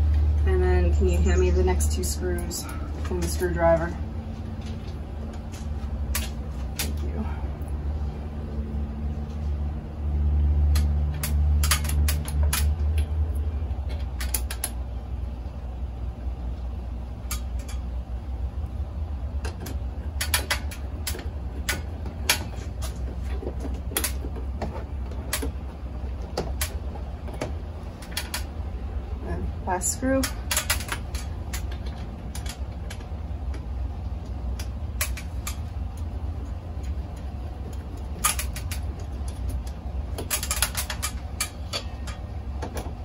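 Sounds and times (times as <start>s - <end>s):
screwdriver and screws on metal: 10.7s - 12.8s, 19.4s - 28.5s, 29.8s - 43.0s.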